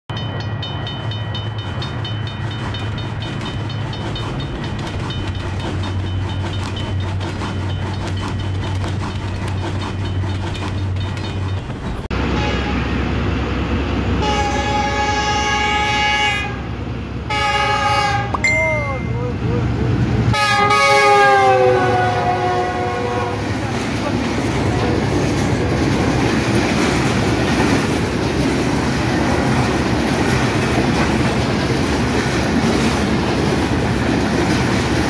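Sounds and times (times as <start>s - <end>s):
diesel locomotive engine rumble: 0.1s - 35.0s
train wheels clickety-clack: 0.2s - 12.1s, 22.5s - 35.0s
train air horn blast: 12.1s - 13.0s, 14.2s - 16.7s, 17.3s - 18.4s, 20.3s - 23.6s.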